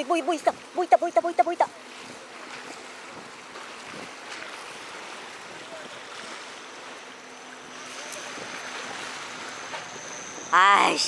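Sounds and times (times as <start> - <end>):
sea water washing against rocks: 0.0 - 6.6.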